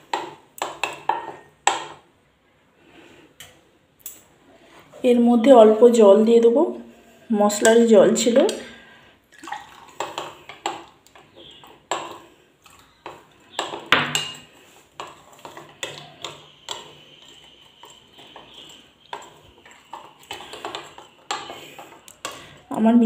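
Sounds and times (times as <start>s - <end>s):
spoon scraping a bowl: 9.9s - 22.7s.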